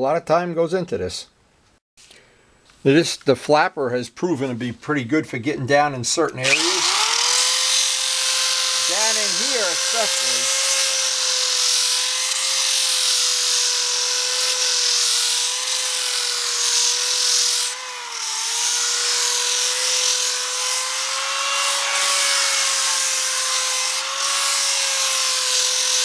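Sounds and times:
electric drill motor whine: 6.4 - 26.0
gritty sanding hiss: 7.6 - 26.0.

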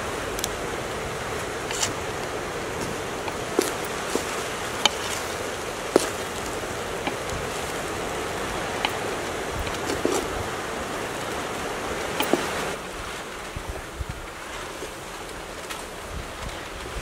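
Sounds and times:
rice being mixed by hand: 1.2 - 12.8.

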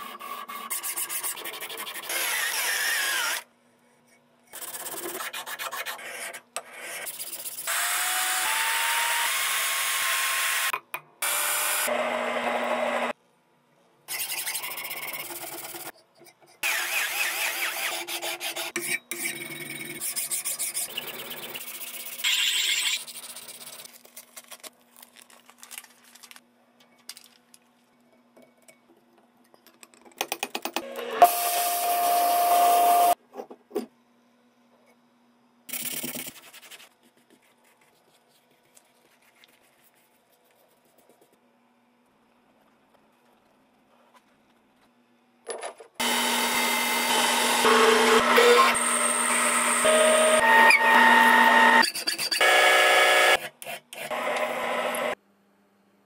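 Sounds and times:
drill cutting into steel: 7.7 - 13.1, 30.8 - 33.2, 46.0 - 55.2
power tool whining: 46.0 - 51.8, 52.4 - 53.4, 54.0 - 55.2.

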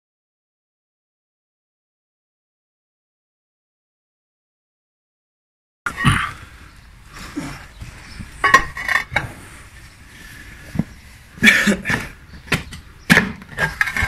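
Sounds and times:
pickaxe clanking on stone: 11.8 - 14.0.

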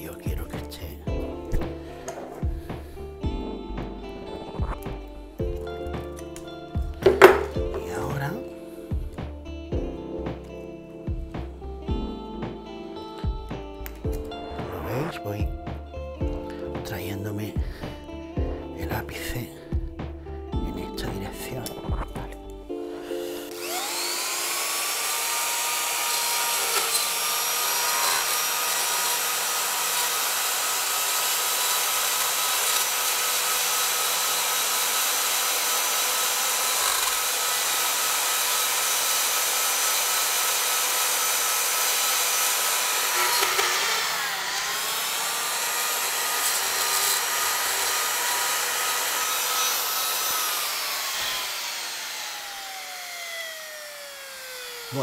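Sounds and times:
rotary tool grinding wood: 23.0 - 55.0.

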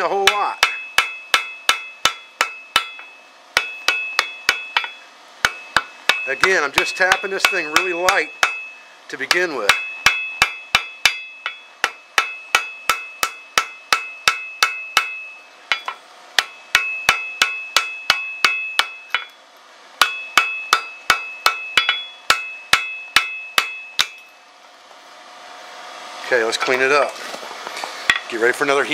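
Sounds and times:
anvil ringing: 0.0 - 19.4, 20.0 - 24.4
hammer blows on hot steel: 0.0 - 19.4.

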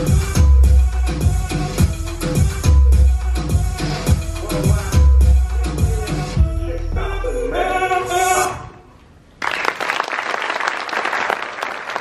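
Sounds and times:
dance music: 0.0 - 8.7
audience applause: 9.4 - 12.0.

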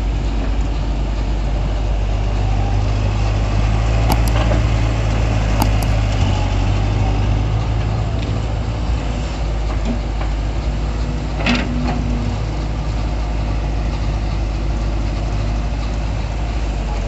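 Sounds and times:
sharp knock: 4.1 - 4.7, 5.6 - 6.0.

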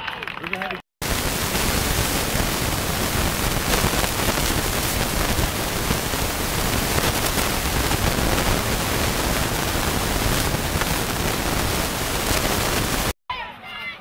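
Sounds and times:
steady rushing hiss: 1.0 - 13.2.

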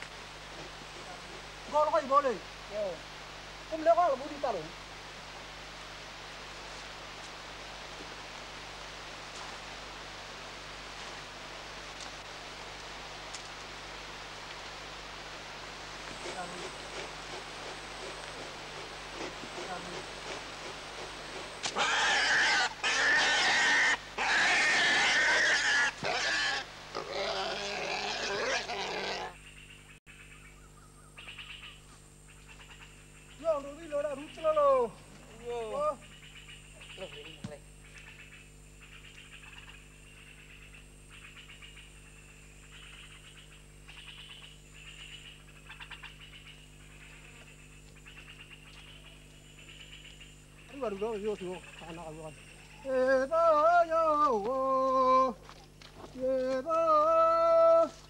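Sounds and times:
steady low hum: 0.0 - 58.0
pig squealing: 21.6 - 29.4.

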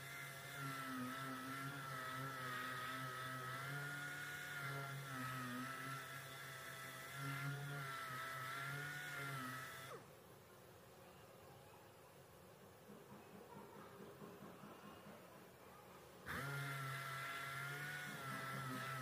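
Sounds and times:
orbital sander whining: 0.0 - 10.1, 16.2 - 19.0.

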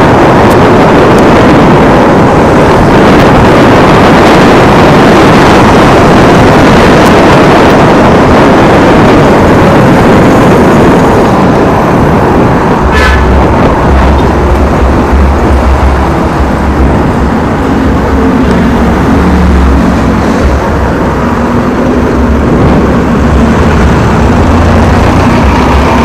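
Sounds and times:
traffic engines humming: 0.0 - 26.0
wind rushing over microphone: 0.0 - 26.0
short horn toot: 12.9 - 13.4.

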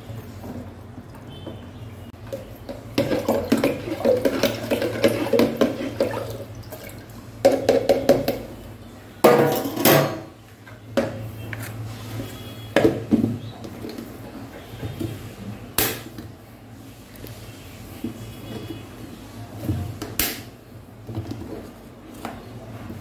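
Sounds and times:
liquid sloshing: 2.3 - 7.6
spoon clinking and scraping a jug: 3.0 - 6.4.

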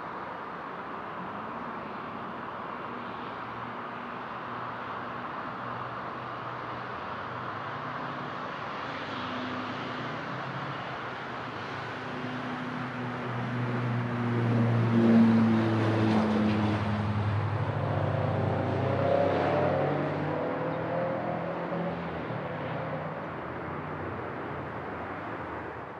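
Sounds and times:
propeller airplane passing by: 11.6 - 25.3.

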